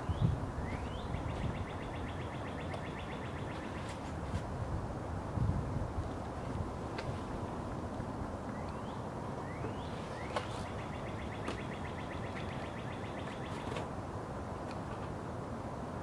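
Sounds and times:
songbird whistles and trill: 0:00.0 - 0:04.0, 0:08.5 - 0:13.8
low background noise: 0:00.0 - 0:16.0.

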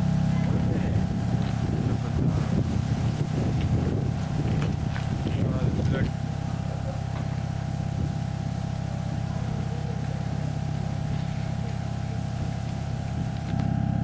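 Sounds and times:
locomotive low hum: 0:00.0 - 0:14.0.

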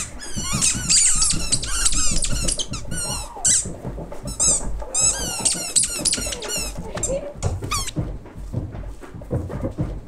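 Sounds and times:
high-pitched squeaky chirps: 0:00.0 - 0:08.0.

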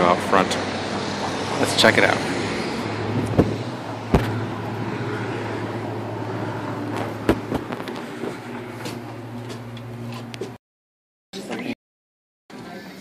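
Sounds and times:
car engine and road noise: 0:00.0 - 0:10.6
sharp knocks: 0:03.3 - 0:04.4, 0:07.0 - 0:08.0.

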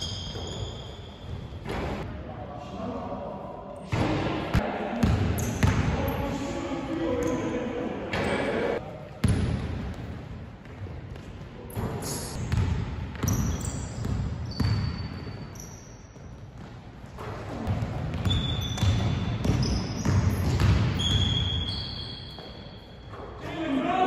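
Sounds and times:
sneaker squeaks: 0:00.0 - 0:02.0, 0:05.4 - 0:06.2, 0:07.2 - 0:09.4, 0:11.7 - 0:23.6.

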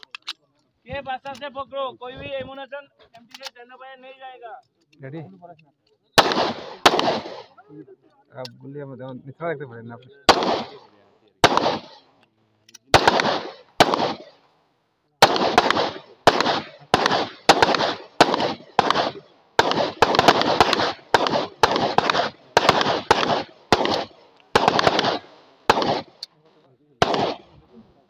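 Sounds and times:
pistol shots with echo: 0:06.2 - 0:07.6, 0:10.3 - 0:12.1, 0:12.9 - 0:14.4, 0:15.2 - 0:26.4, 0:27.0 - 0:27.7.

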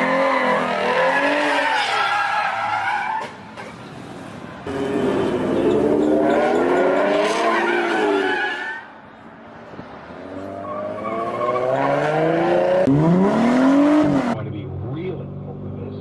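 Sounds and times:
muscle car engines revving past: 0:04.7 - 0:08.4.

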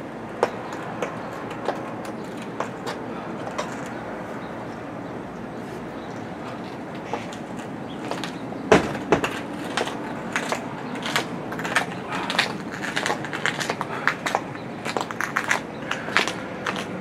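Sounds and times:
cycling shoes clicking on concrete: 0:00.0 - 0:17.0
sharp knocks: 0:08.1 - 0:16.9.

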